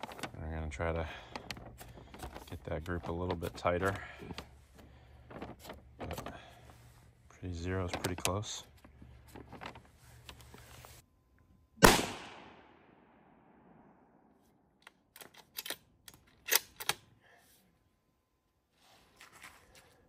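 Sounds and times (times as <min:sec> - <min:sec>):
rifle shot: 0:11.8 - 0:14.0
rifle bolt clicks and clacks: 0:14.8 - 0:17.0.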